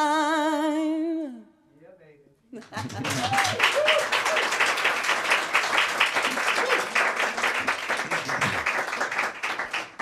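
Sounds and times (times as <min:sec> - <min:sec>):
audience applauding: 0:02.7 - 0:10.0.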